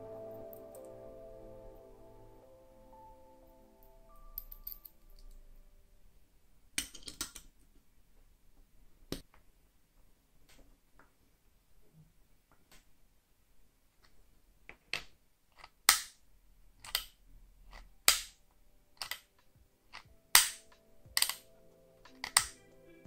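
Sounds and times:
soft background music: 0.0 - 6.1, 17.4 - 23.0
wooden crossbow clicks and snaps: 18.1 - 18.3, 20.4 - 21.4, 22.1 - 22.6.

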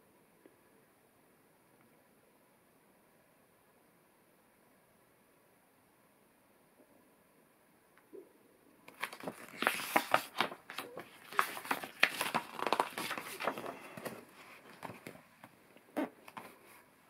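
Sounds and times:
paper page turning: 8.9 - 15.2.

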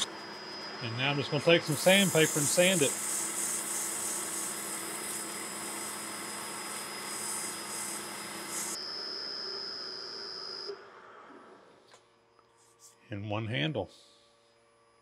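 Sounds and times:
lathe whining: 0.0 - 10.7
sandpaper hissing on wood: 1.5 - 8.8.

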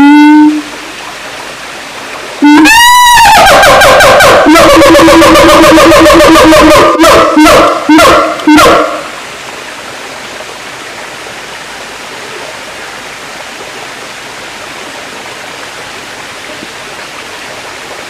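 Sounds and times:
ape's loud call: 2.4 - 9.0.

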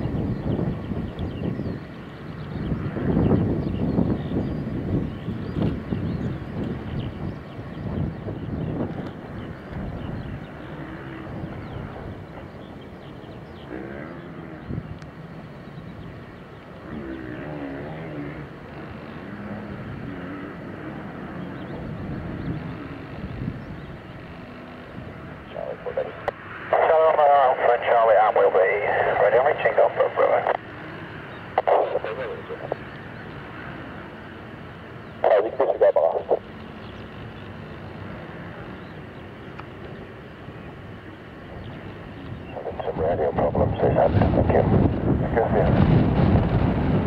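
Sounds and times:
jet engines rumbling: 0.0 - 47.0
garbled radio scanner burst: 25.5 - 30.6, 31.6 - 32.8, 35.2 - 36.4, 42.5 - 45.8.

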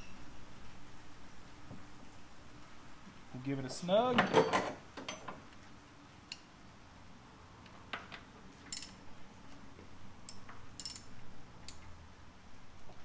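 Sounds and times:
wrench clinking on metal fitting: 8.7 - 9.0, 10.3 - 11.1.

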